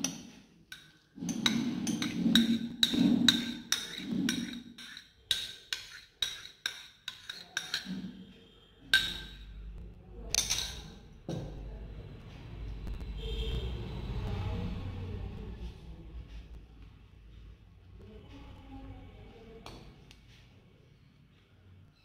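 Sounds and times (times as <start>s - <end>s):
spoon scraping ceramic cup: 0.0s - 9.5s.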